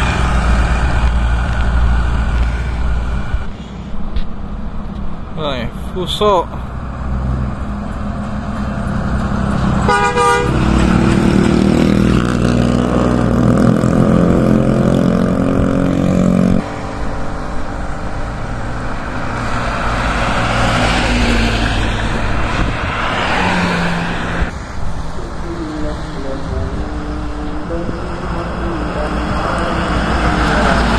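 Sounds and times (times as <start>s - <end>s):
traffic road noise: 0.0s - 30.9s
truck engine droning: 0.0s - 30.9s
truck horn blast: 9.8s - 11.0s.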